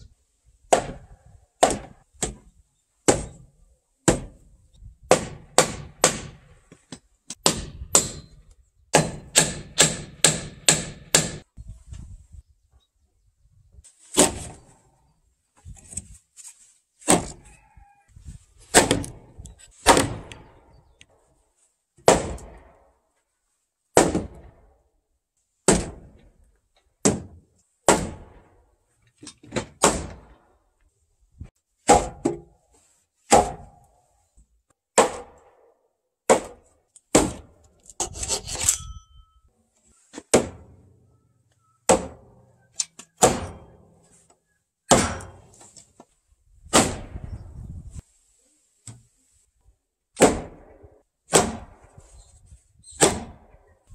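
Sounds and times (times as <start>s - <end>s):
wooden mallet striking timber: 0.7s - 2.5s, 3.1s - 3.4s, 4.0s - 4.4s, 7.4s - 11.5s, 31.8s - 32.5s, 33.3s - 33.8s, 34.9s - 35.5s, 36.3s - 37.6s, 41.9s - 42.3s.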